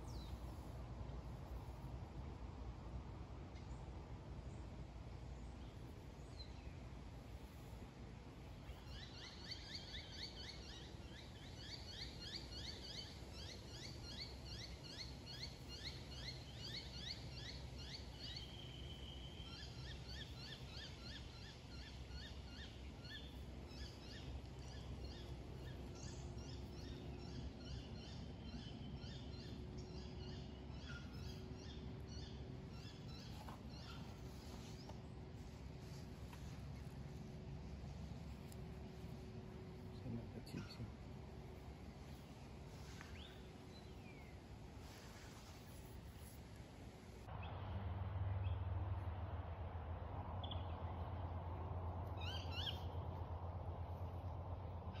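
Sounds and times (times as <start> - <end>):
faint low rumble: 0.0 - 55.0
birds chirping: 8.5 - 46.4, 52.2 - 53.2.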